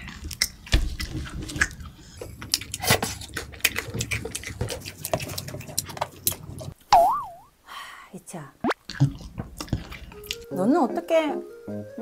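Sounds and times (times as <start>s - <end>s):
crunchy food chewing: 0.0s - 6.8s, 8.8s - 10.5s
wet mouth sounds: 0.0s - 7.5s, 8.6s - 10.5s.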